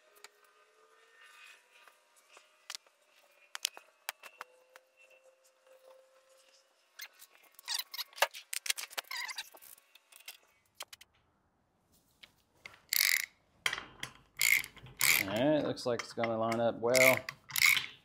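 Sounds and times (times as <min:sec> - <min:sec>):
metal tools clinking: 0:12.9 - 0:18.0
metallic knocks: 0:13.7 - 0:18.0.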